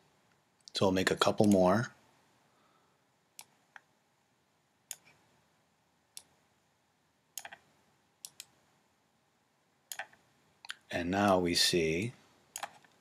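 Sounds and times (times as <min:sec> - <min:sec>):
computer mouse clicking: 0:04.9 - 0:05.2, 0:07.4 - 0:08.6, 0:09.9 - 0:10.8, 0:12.5 - 0:13.0.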